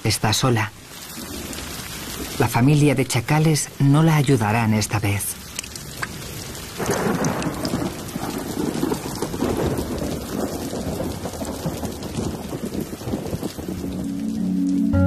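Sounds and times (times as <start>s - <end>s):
heavy rain pouring: 0.0s - 15.0s
thunder rumbling: 5.8s - 15.0s.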